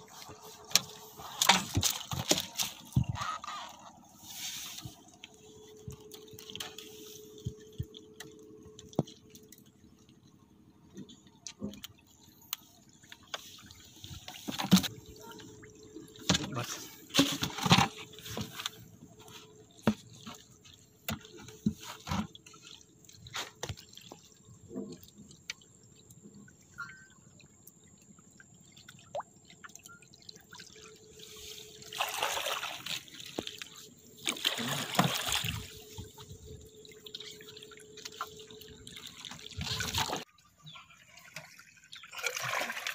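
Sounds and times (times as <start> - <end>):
water splashing in a bucket: 13.0 - 42.9.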